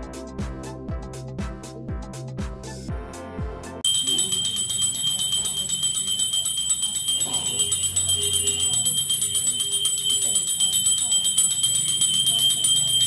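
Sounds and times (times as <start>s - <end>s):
small bell ringing rapidly: 3.8s - 13.0s.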